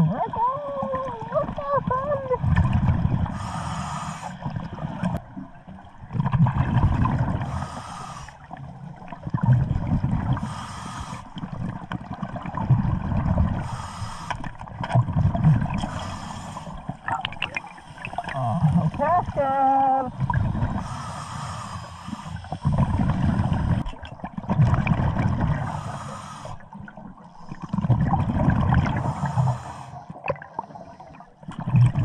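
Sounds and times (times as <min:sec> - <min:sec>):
exhaled bubbles rumbling: 0:00.0 - 0:32.0
regulator inhale hiss: 0:03.3 - 0:04.5, 0:07.4 - 0:08.5, 0:10.4 - 0:11.4, 0:13.6 - 0:14.5, 0:15.8 - 0:16.8, 0:20.8 - 0:22.8, 0:25.6 - 0:26.7, 0:29.0 - 0:31.2.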